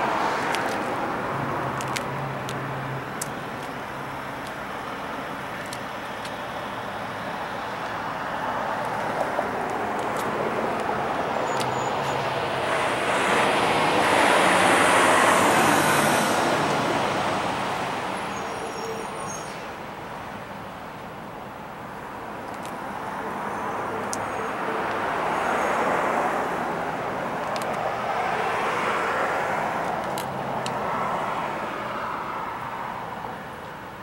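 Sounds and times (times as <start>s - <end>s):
vehicle passing by: 8.6s - 18.2s.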